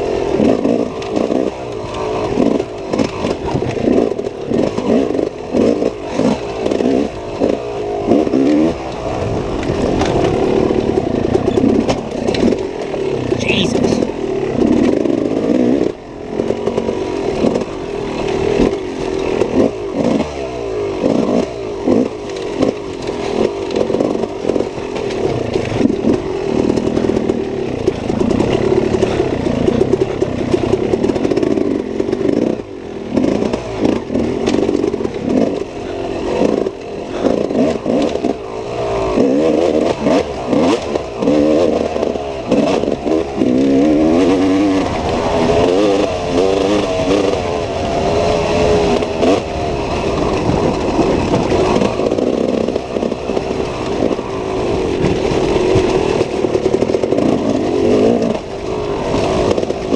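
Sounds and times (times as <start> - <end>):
clattering and scraping over ground: 0.0 - 13.2, 16.4 - 59.9
dirt bike engine revving: 0.0 - 59.9.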